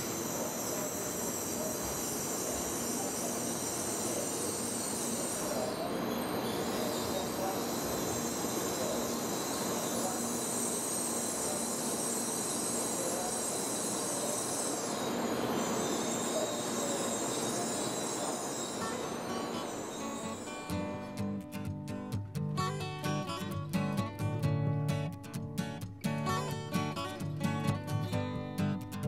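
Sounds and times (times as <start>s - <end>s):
train rolling noise: 0.0s - 20.9s
high-pitched train whine: 0.0s - 21.4s.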